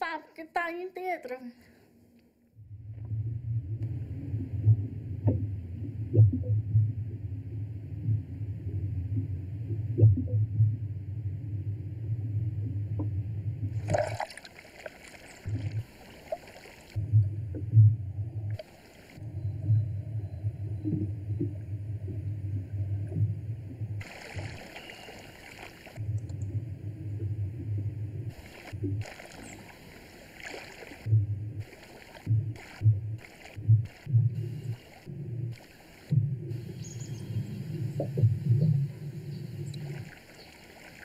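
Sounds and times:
muffled underwater rumble: 0:02.6 - 0:41.0
water splashing and lapping: 0:13.6 - 0:17.8, 0:24.0 - 0:26.6, 0:28.2 - 0:41.0.

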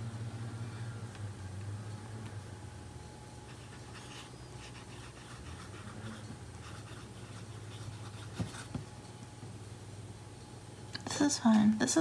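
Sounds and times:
pen nib scratching paper: 0:03.5 - 0:08.7.

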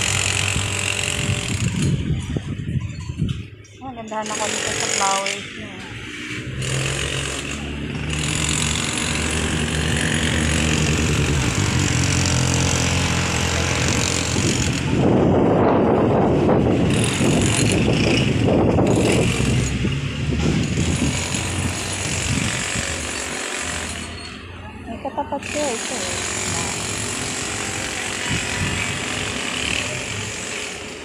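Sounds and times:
engine running: 0:00.0 - 0:02.7, 0:04.1 - 0:31.0
wind buffeting microphone: 0:00.0 - 0:03.6, 0:09.2 - 0:23.2, 0:26.2 - 0:30.3
road traffic: 0:00.0 - 0:31.0.

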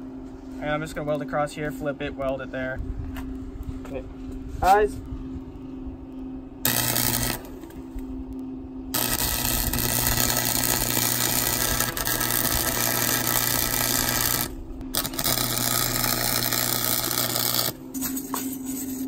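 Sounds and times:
welder arc hissing: 0:06.6 - 0:07.7, 0:08.9 - 0:17.8.

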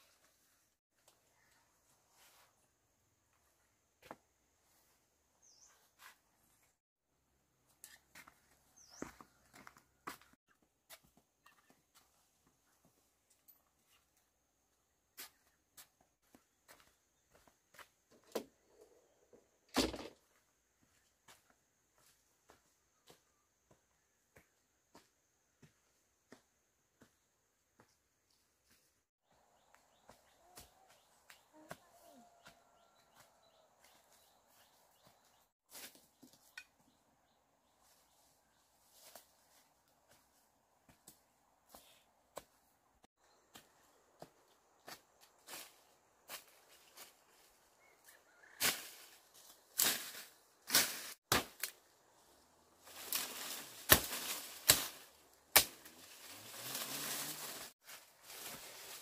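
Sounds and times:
footsteps of sandals on leafy path: 0:07.7 - 0:13.0, 0:15.1 - 0:18.0, 0:28.6 - 0:36.6, 0:37.7 - 0:59.0
leaves and stems rustling: 0:48.5 - 0:59.0
machete chopping saplings: 0:48.6 - 0:49.1, 0:49.8 - 0:52.0, 0:52.9 - 0:57.2.

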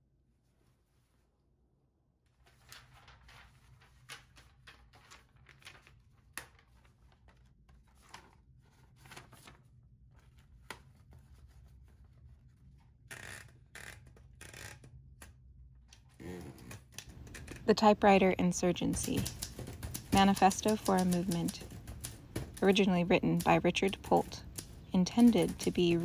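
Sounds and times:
paper rustling: 0:02.3 - 0:13.0, 0:16.3 - 0:26.0.

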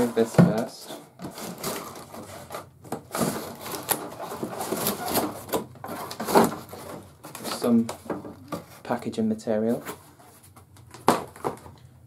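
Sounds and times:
cardboard scraping and knocking: 0:00.0 - 0:08.9.

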